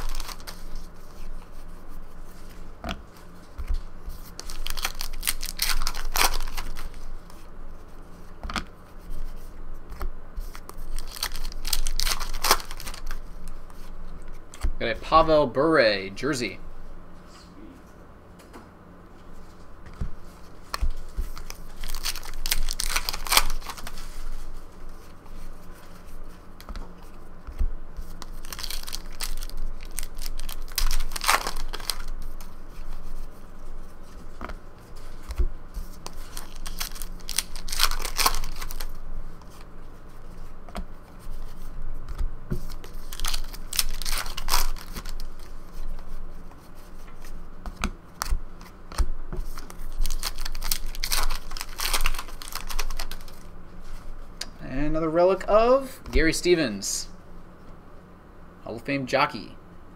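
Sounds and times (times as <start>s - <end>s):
card pack wrappers tearing: 0.0s - 0.9s, 4.2s - 7.1s, 10.4s - 13.6s, 20.7s - 24.2s, 28.2s - 32.9s, 35.8s - 39.6s, 42.7s - 45.8s, 49.4s - 53.5s
cards rustling: 0.0s - 14.7s, 19.5s - 54.1s.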